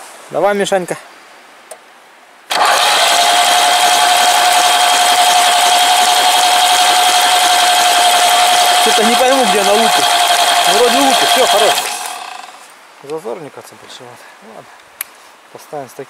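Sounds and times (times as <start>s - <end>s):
electric starter cranking engine: 2.5s - 12.7s.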